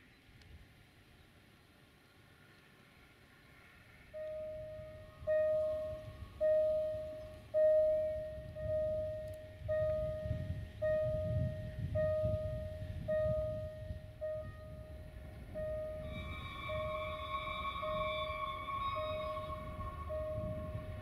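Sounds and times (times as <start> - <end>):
low rumble: 3.8 - 21.0
ringing chime struck: 4.2 - 10.4, 12.1 - 21.0.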